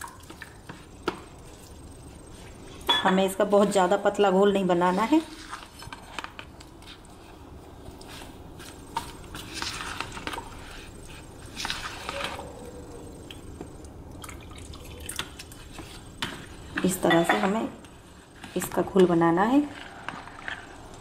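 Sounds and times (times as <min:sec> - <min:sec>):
spoon stirring wet batter: 0:00.1 - 0:13.6, 0:14.3 - 0:21.0
spoon scraping and tapping bowl: 0:16.2 - 0:17.6.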